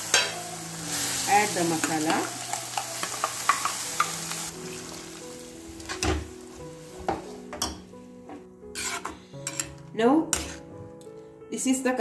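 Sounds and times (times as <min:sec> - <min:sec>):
paste sizzling in hot oil: 0:00.0 - 0:05.9
ladle knocking and scraping a pan: 0:07.0 - 0:09.8.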